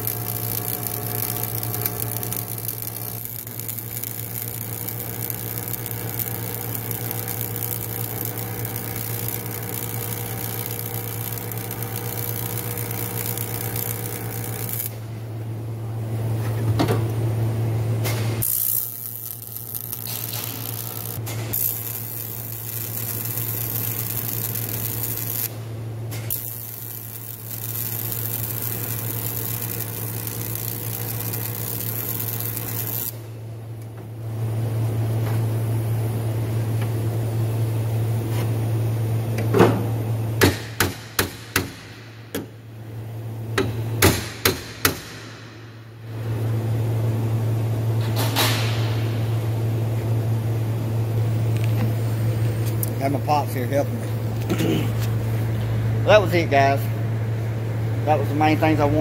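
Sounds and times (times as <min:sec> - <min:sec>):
welding arc hissing and crackling: 0:00.0 - 0:15.2, 0:18.1 - 0:33.4, 0:40.4 - 0:43.0, 0:43.6 - 0:46.4, 0:51.4 - 0:56.9
welder electrical hum: 0:00.0 - 0:59.0.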